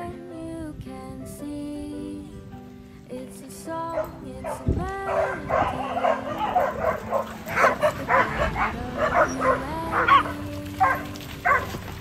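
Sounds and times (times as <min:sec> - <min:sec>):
puppies barking and yipping: 0:03.9 - 0:12.0.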